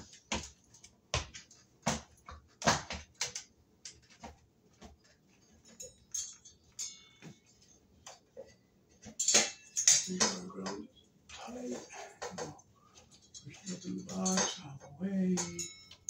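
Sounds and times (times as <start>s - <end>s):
small metallic clicks and clinks: 3.2s - 11.1s, 12.2s - 16.0s.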